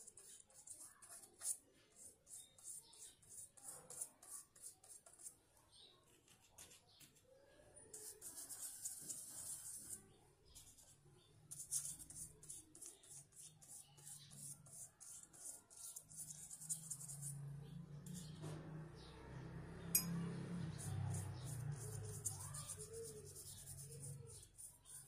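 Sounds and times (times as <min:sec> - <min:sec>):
paintbrush scrubbing on paper: 0:00.0 - 0:05.3, 0:07.9 - 0:10.9, 0:11.5 - 0:17.4, 0:20.7 - 0:25.0.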